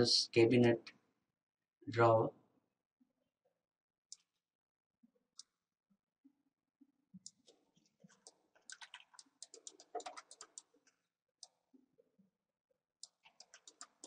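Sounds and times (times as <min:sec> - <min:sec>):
mouse and keyboard clicking: 0:08.1 - 0:10.7, 0:13.0 - 0:14.0.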